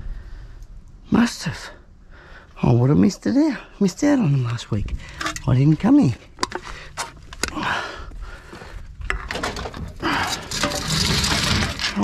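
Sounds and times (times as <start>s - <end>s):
tray cover scraping over cans: 9.2s - 12.0s.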